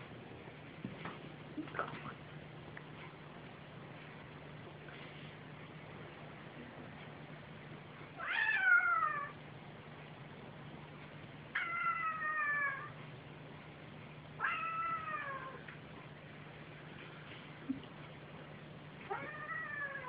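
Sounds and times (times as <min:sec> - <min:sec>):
cat meowing: 0:08.2 - 0:09.4, 0:14.4 - 0:15.6, 0:19.1 - 0:20.0.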